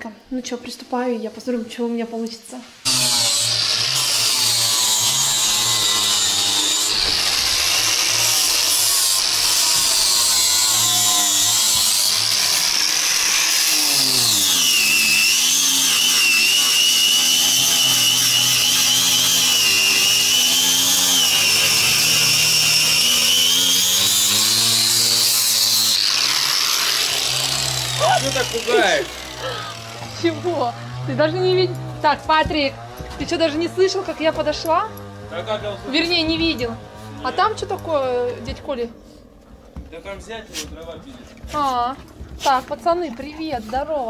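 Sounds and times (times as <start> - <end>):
power tool motor whine: 2.9 - 38.8.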